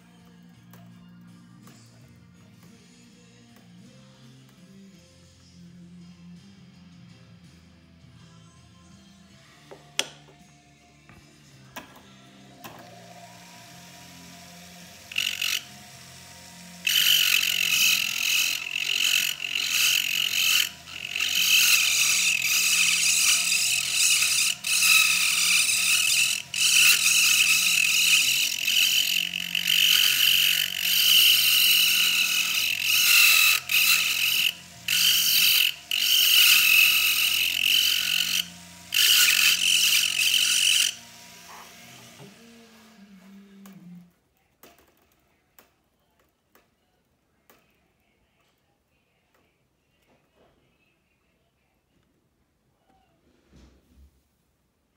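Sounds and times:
rotary tool grinding metal: 0:12.4 - 0:44.0.

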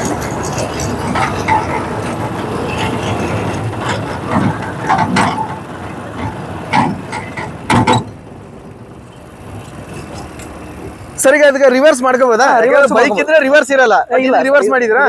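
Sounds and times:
sharp knocks and clatters: 0:00.0 - 0:08.3.

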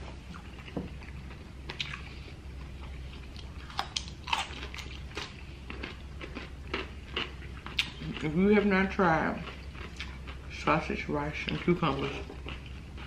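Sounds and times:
person chewing food: 0:00.1 - 0:10.5, 0:11.4 - 0:13.0.

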